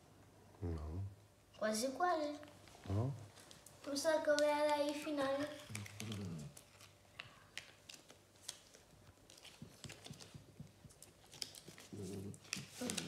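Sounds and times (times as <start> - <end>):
low voice sound: 0.6 - 1.1, 2.9 - 3.2
paper crackling: 4.3 - 13.0.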